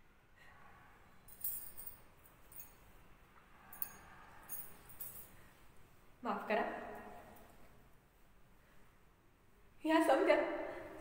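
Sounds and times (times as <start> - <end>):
glass bangles clinking: 1.2 - 5.6.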